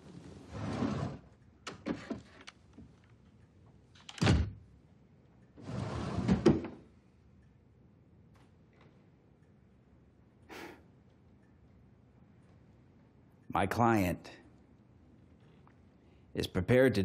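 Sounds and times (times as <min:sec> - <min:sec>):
wooden drawer sliding: 0:00.4 - 0:01.2, 0:05.6 - 0:06.8.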